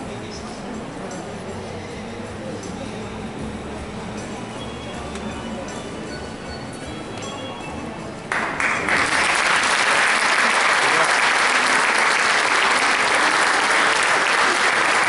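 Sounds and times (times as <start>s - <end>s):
audience applauding: 8.3s - 15.0s.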